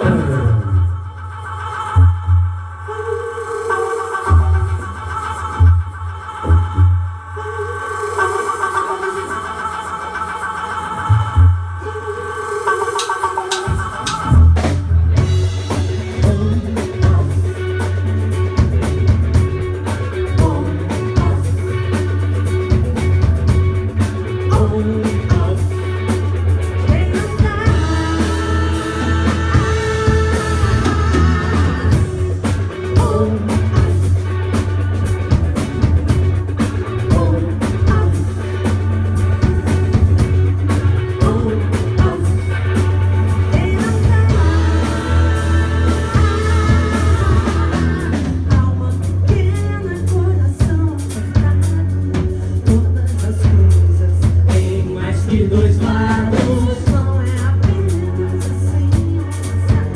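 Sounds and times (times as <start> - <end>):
bass guitar: 0.0 - 3.0, 4.2 - 7.7, 10.5 - 12.0, 13.0 - 59.9
person singing: 0.0 - 14.7, 15.3 - 22.9, 24.0 - 35.0, 36.6 - 59.9
electric guitar: 0.0 - 59.9
drum kit beat: 12.8 - 59.9.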